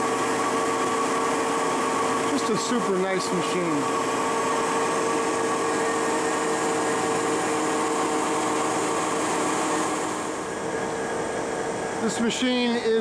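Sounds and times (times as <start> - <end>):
machinery hum with whining tones: 0.0 - 13.0.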